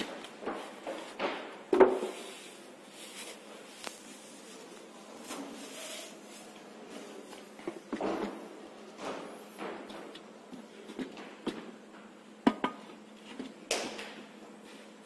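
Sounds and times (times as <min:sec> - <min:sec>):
foam packing being handled: 0:02.1 - 0:07.3
plastic wrapping rustling: 0:02.1 - 0:07.3.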